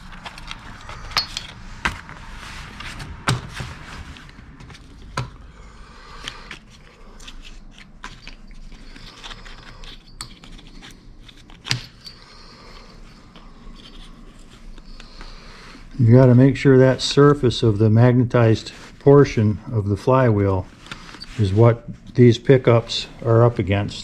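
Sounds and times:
rustling and light scraping: 0.0 - 5.0, 17.6 - 24.0.

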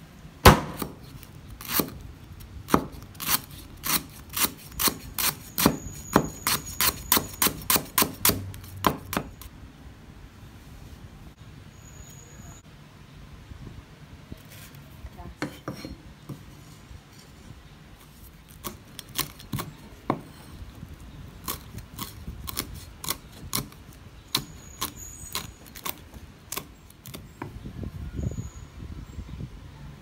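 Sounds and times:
cleaver chopping on wooden board: 0.5 - 1.0, 2.7 - 9.4.

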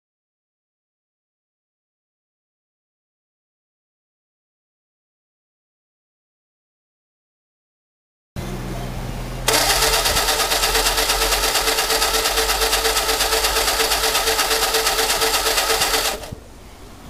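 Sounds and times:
engine cranking over: 9.5 - 16.4
starter motor whine: 9.5 - 16.4.

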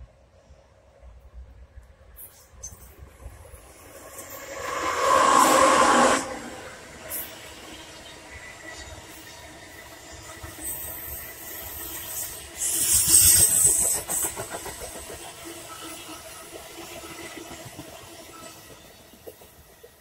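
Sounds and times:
train wheels rumbling on rails: 0.0 - 20.0
hissing rush of air: 3.8 - 7.3.

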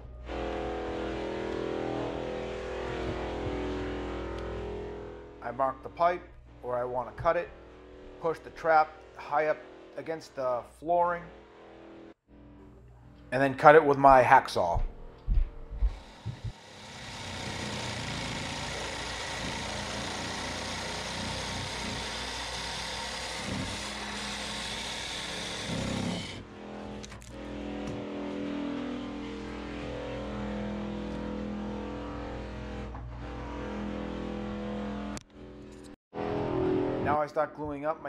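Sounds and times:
hacksaw cutting plastic pipe: 15.9 - 26.4.

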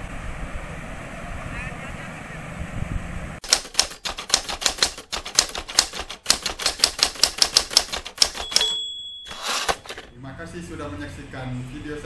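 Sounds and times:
wind: 0.0 - 12.0
typewriter key clacks: 3.4 - 10.1.

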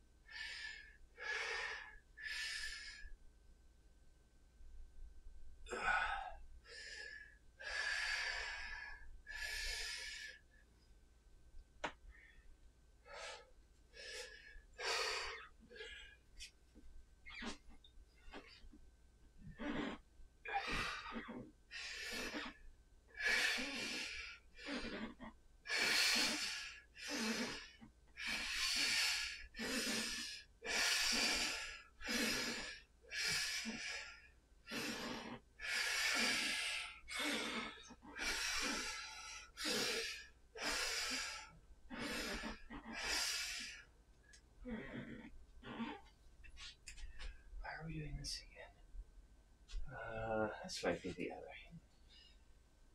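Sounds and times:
man breathing hard: 5.7 - 10.4, 20.5 - 22.6, 23.2 - 43.9.

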